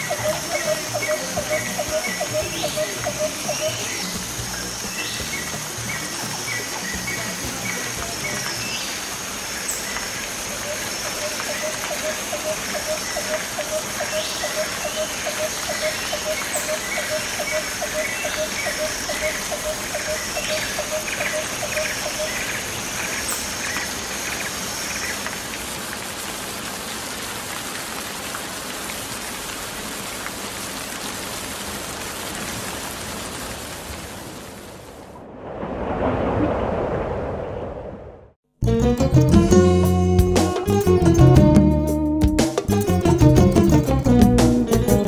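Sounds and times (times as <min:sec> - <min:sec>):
higher pulsing bird call: 0:00.0 - 0:04.1, 0:10.6 - 0:22.6
steady hiss: 0:00.0 - 0:33.1.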